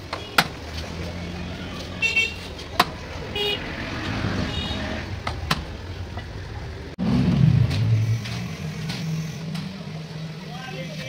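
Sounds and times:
low engine rumble: 0:00.0 - 0:11.0
street traffic: 0:00.0 - 0:11.0
vehicle horn toots: 0:02.0 - 0:02.5, 0:03.3 - 0:03.6, 0:04.4 - 0:05.0.

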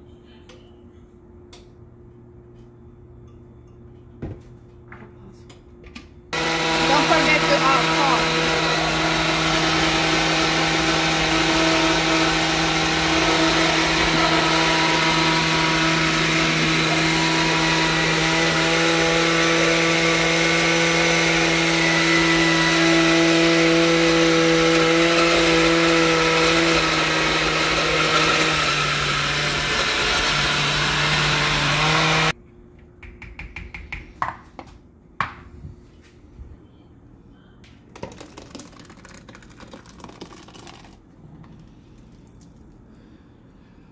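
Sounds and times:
blender running: 0:06.4 - 0:32.4.

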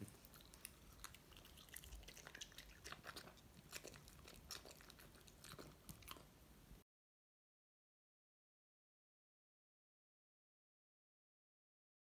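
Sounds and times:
dog chewing with wet smacks: 0:00.0 - 0:06.4.

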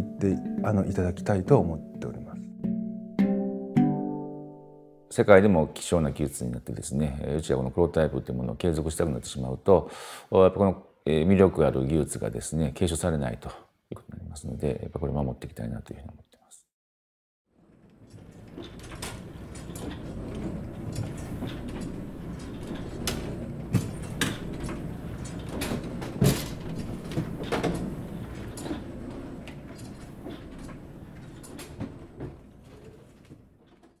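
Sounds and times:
printing presses rumbling: 0:17.8 - 0:33.8.

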